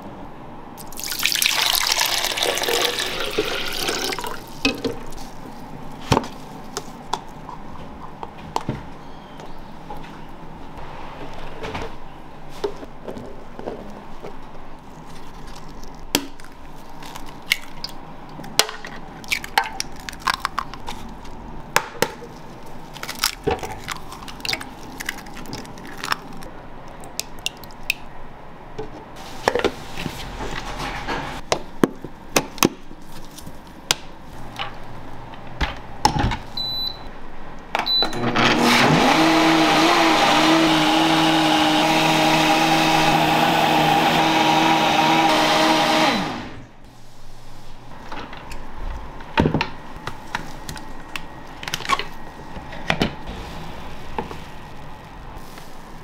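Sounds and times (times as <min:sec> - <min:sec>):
eggs cracking: 0:14.8 - 0:28.1
blender motor running: 0:38.2 - 0:46.6.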